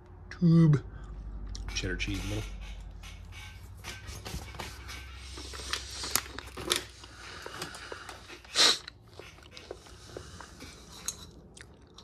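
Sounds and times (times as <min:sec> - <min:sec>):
person chewing crunchy cracker: 0:05.4 - 0:12.0.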